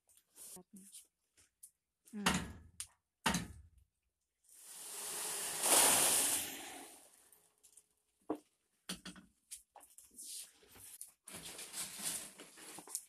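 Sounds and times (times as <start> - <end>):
fried snacks pouring rattle: 4.6 - 7.1.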